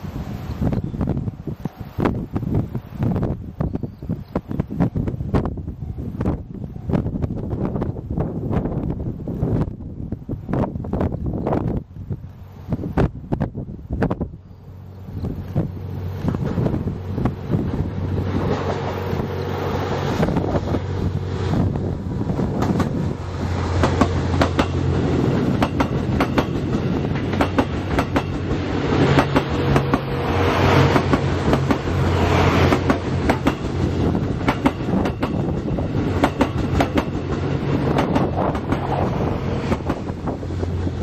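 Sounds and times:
train low drone: 0.0s - 41.0s
wheels clicking over rail joints: 22.4s - 41.0s.

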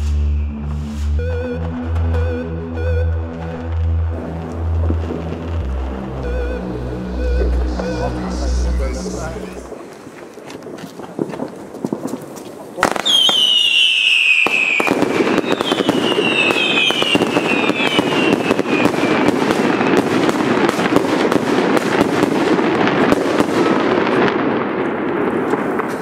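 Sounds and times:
firework whistle falling: 0.0s - 9.7s, 13.0s - 20.1s
firework crackling: 3.1s - 26.0s.

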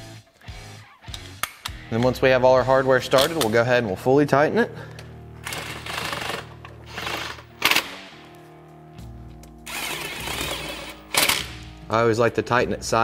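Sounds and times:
background music: 0.0s - 13.0s
power tool driving bolts: 5.4s - 8.1s, 9.7s - 11.6s.

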